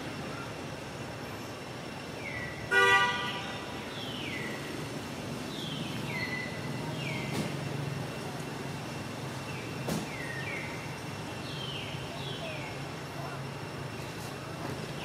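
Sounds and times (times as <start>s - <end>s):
vehicle horn toot: 2.7s - 3.8s.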